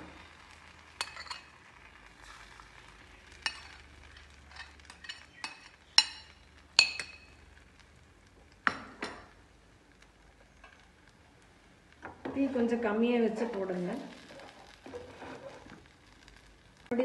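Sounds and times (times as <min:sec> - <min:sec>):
bread sizzling faintly: 0:00.0 - 0:17.0
metal spoon clinking on plate and pan: 0:01.0 - 0:01.5, 0:03.4 - 0:03.8, 0:04.5 - 0:07.4.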